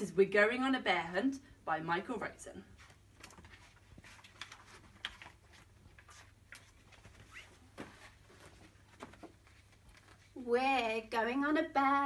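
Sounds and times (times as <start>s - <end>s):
paper pages rustling and turning: 2.8s - 10.4s.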